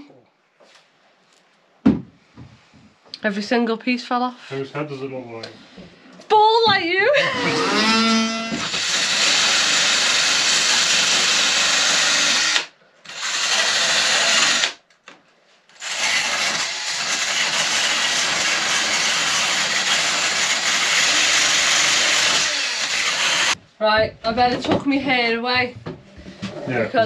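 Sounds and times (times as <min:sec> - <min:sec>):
cordless drill whirring: 0:07.4 - 0:14.8, 0:15.8 - 0:23.6.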